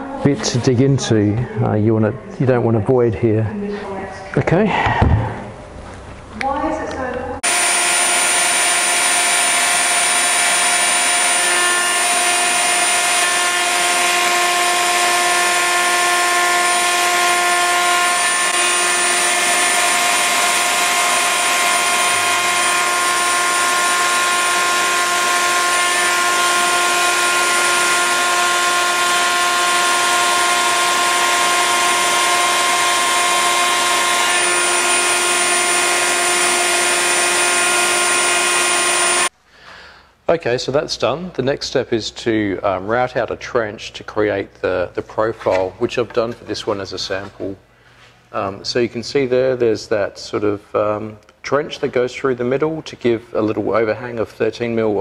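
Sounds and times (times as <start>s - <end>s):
router and vacuum whining: 7.4s - 39.3s.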